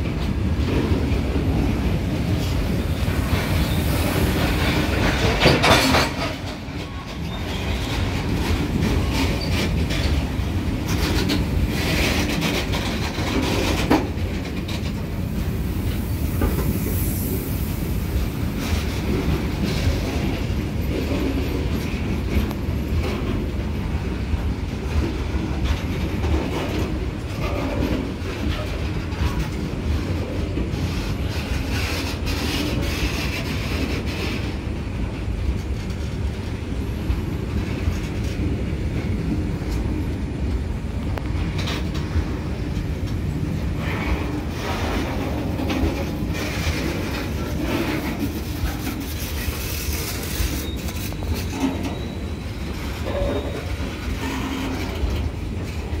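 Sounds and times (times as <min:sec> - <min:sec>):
wheels clattering over rail joints: 0:00.0 - 0:17.0, 0:41.1 - 0:56.0
freight train wheels rumbling: 0:00.0 - 0:56.0
high wheel squeal: 0:49.2 - 0:54.7.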